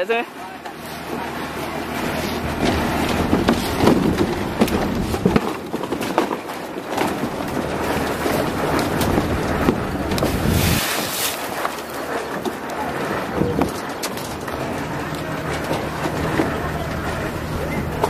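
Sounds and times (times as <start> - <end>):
low engine drone: 0.0 - 18.0
wind buffeting microphone: 1.6 - 18.0
footsteps on wooden planks: 2.0 - 12.6
wheelbarrow knocks and clanks: 2.1 - 18.0.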